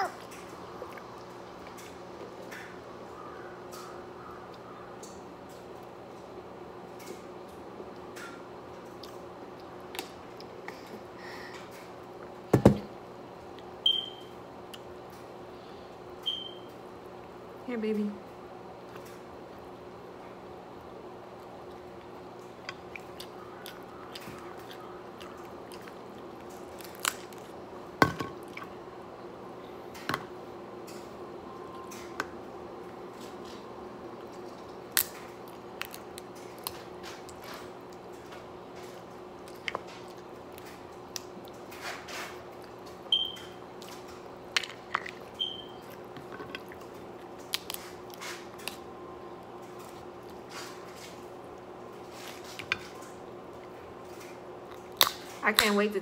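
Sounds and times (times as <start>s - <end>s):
faint steady hum: 0.0s - 56.0s
wet squishing and chewing: 0.1s - 2.8s, 8.2s - 11.0s, 21.3s - 27.8s, 28.4s - 28.8s, 34.2s - 55.7s
crab shells cracking: 22.7s - 27.6s, 34.8s - 38.1s, 46.0s - 48.8s, 54.7s - 55.7s.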